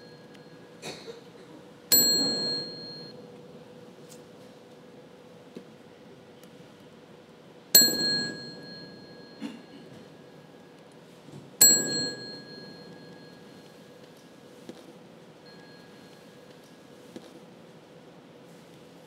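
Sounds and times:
desk bell ringing: 1.9 - 3.2, 7.8 - 9.8, 11.6 - 13.8.

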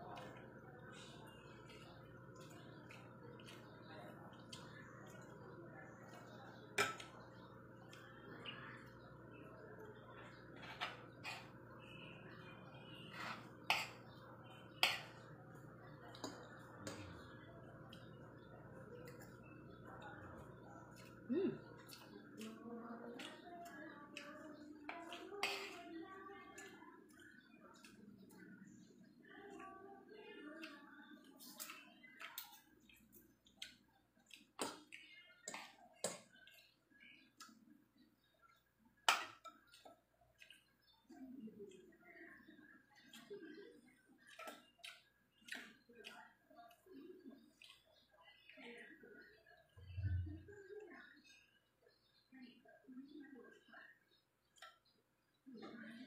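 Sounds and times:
cutlery clinking on dishes: 6.2 - 7.4, 13.2 - 14.0
cutlery clinking on a plate: 6.8 - 7.4.

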